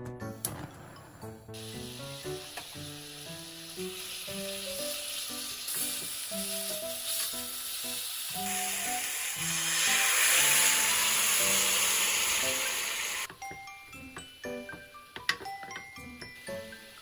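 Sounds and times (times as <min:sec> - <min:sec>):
soft plucked background music: 0:00.0 - 0:17.0
meat sizzling in a pan: 0:01.6 - 0:13.3.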